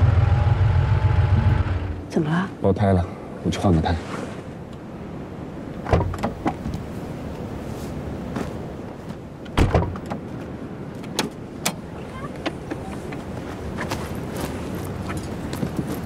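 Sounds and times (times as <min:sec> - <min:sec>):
car door opening with a thud: 0:05.8 - 0:06.7, 0:09.6 - 0:10.2
car door slamming shut: 0:09.6 - 0:10.0.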